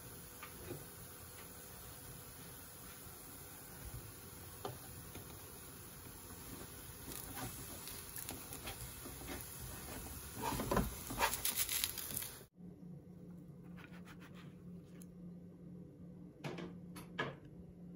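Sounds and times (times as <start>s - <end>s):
pancake sizzling in a pan: 0.0s - 12.5s.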